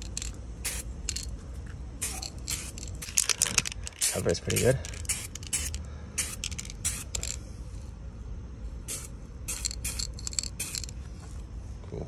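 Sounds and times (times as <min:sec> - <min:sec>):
aerosol spray hissing: 0:04.0 - 0:07.3, 0:08.9 - 0:10.9.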